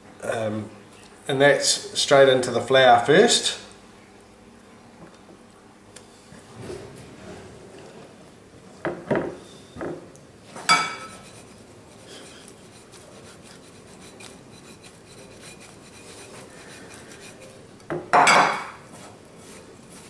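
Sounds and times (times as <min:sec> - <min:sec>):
flour rustling in shaken bowl: 0:11.1 - 0:17.6, 0:18.9 - 0:20.0.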